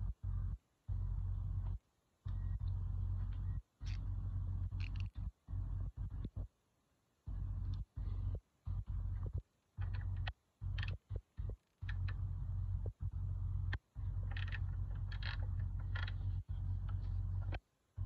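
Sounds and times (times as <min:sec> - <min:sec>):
low rumble: 0:00.0 - 0:06.5, 0:07.3 - 0:18.0.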